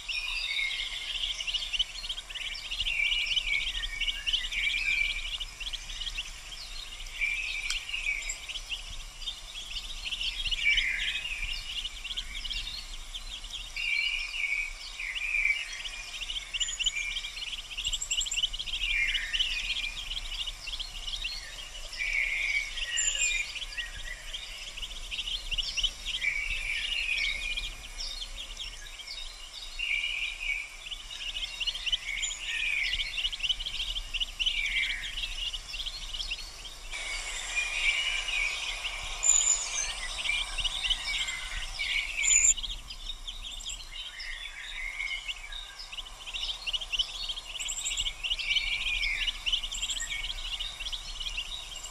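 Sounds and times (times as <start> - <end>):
ducklings peeping: 32.9 - 42.7, 45.0 - 51.8.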